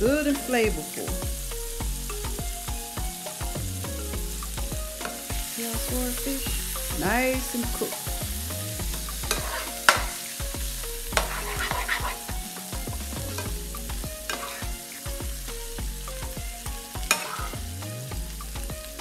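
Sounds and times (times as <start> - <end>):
fish sizzling in a skillet: 0.0 - 19.0
metal spoon scraping and clinking pan: 9.1 - 10.4, 11.1 - 12.3, 14.3 - 14.7, 17.0 - 17.6.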